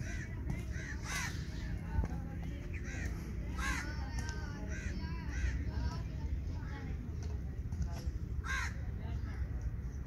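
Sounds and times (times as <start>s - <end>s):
crows cawing: 0.0s - 1.5s, 2.8s - 4.0s, 4.6s - 5.7s, 8.4s - 8.8s
low outdoor rumble: 0.0s - 10.0s.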